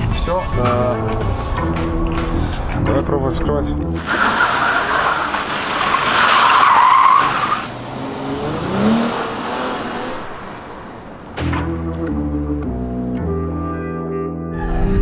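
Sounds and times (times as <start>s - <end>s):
engine revving: 3.9s - 13.0s
car tyres squealing: 4.0s - 11.8s.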